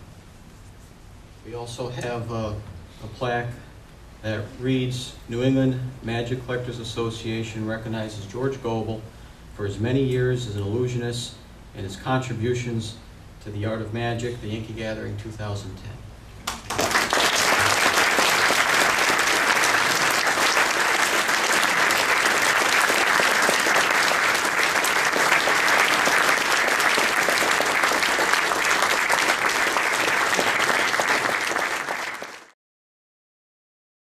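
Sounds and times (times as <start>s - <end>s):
audience applauding: 16.4s - 32.6s.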